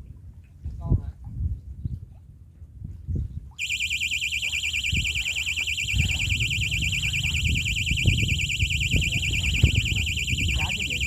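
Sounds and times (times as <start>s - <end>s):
bite alarm warbling tone: 3.6s - 11.0s.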